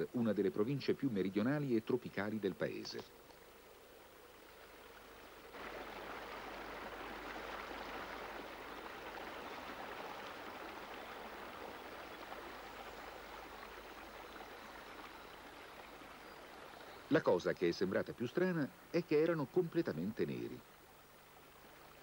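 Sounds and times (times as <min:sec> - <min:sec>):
stream rushing over rocks: 0:04.5 - 0:19.4.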